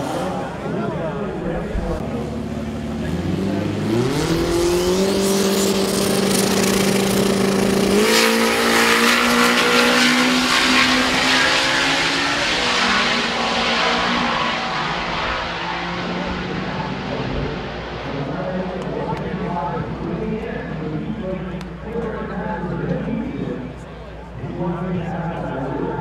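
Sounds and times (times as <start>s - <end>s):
drag car engines accelerating: 0.0s - 26.0s
tire squeal: 8.1s - 16.3s.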